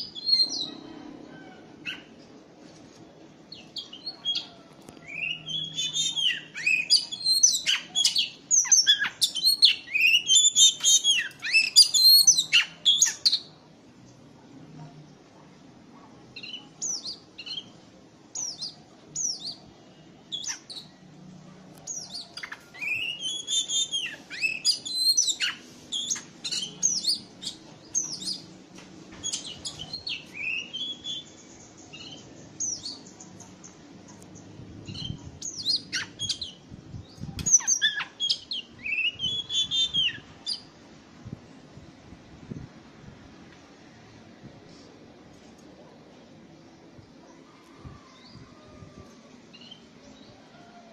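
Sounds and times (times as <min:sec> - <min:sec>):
bird singing whistled notes: 0:03.7 - 0:13.5, 0:22.8 - 0:28.4, 0:29.2 - 0:33.1, 0:34.9 - 0:40.7.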